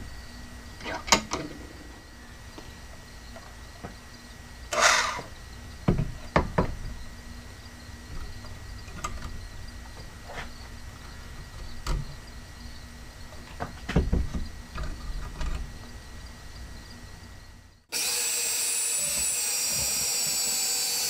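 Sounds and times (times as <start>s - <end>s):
band saw knocks and clunks: 13.6s - 14.5s.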